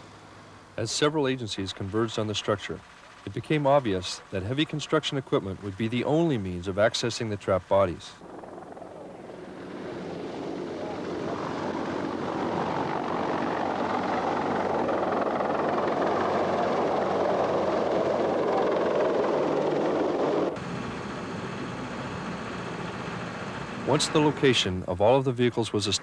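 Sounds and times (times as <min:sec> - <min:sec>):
helicopter rotors and engines: 0:00.0 - 0:26.0
steady background noise: 0:00.0 - 0:26.0.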